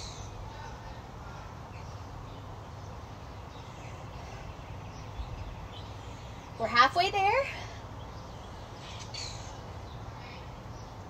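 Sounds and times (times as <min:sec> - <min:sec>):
outdoor background noise: 0:00.0 - 0:11.0
faint bird chirps: 0:08.0 - 0:11.0.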